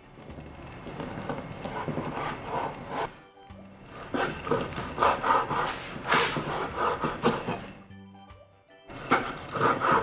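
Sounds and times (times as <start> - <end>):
knife cutting on wooden board: 1.2 - 3.1, 3.9 - 7.8, 8.9 - 10.0.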